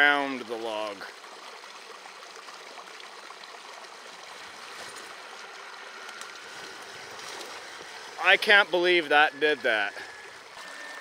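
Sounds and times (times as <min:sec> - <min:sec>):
creek water trickling: 0:00.0 - 0:11.0.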